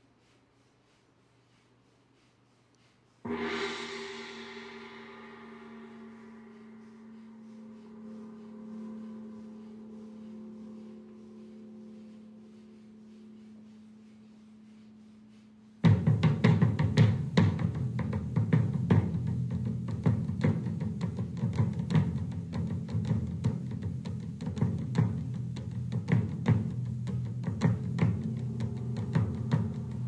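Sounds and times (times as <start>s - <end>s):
loud drumbeats: 15.8s - 30.0s.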